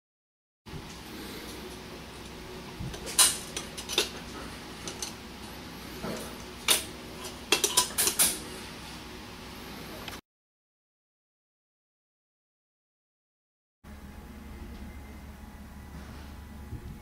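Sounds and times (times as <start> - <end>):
steady low hum: 0.7 - 10.2, 13.9 - 17.0.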